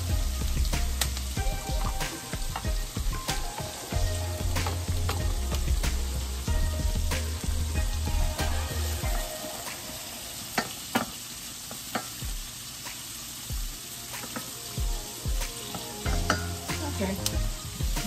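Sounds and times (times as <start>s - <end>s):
vegetables sizzling in a pan: 0.0s - 18.0s
wooden spoon knocking on pan: 16.1s - 16.5s.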